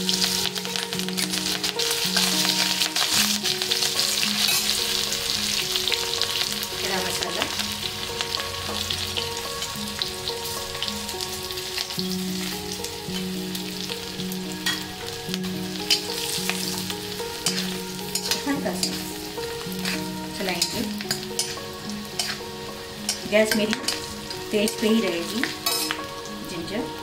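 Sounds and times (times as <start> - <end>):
spices sizzling in hot ghee: 0.0 - 27.0.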